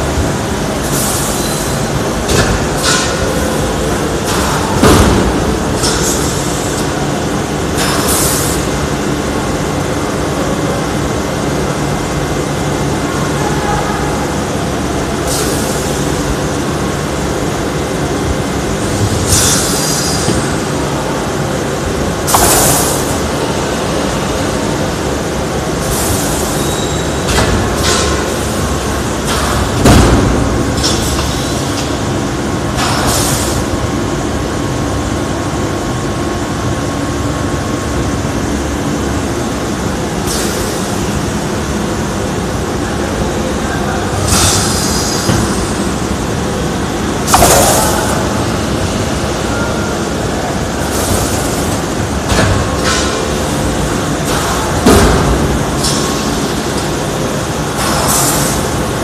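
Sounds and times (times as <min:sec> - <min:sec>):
packaging machine humming: 0:00.0 - 0:59.0
sharp hiss of air: 0:19.2 - 0:20.6, 0:44.3 - 0:45.9.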